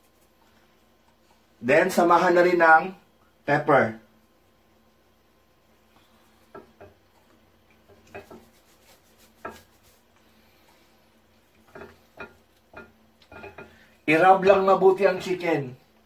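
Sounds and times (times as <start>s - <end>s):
hands rubbing chicken: 7.8s - 10.8s.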